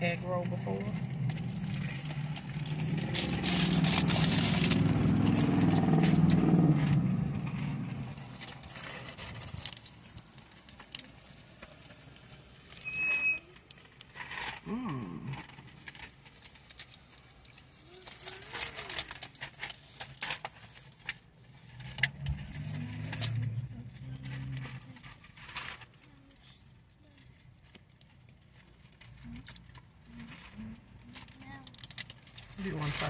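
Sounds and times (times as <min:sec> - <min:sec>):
crunchy chewing: 0:01.1 - 0:06.6
short high beep: 0:12.8 - 0:13.5.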